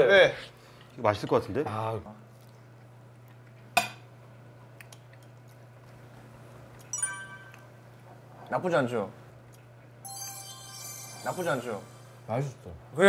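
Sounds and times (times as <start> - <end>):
low steady hum: 2.0 - 13.0
bright ringing: 6.9 - 7.9, 10.0 - 12.6.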